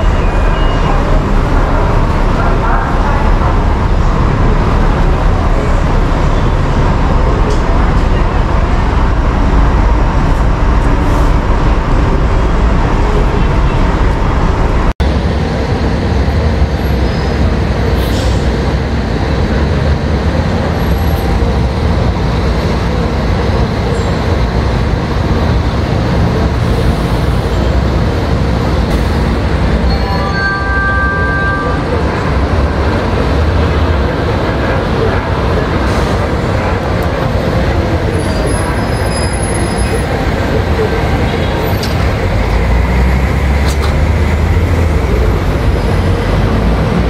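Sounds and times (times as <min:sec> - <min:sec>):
street traffic noise: 0:00.0 - 0:47.0
short high-pitched tone: 0:29.8 - 0:31.9.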